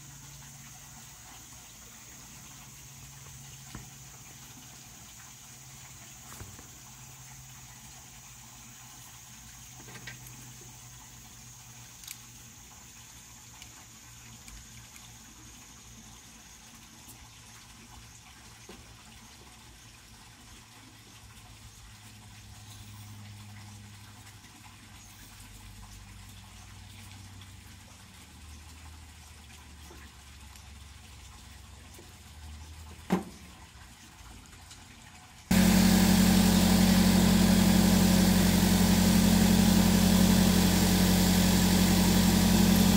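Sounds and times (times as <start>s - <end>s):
gas hissing through hose: 35.5s - 42.9s
low engine hum: 35.5s - 42.9s.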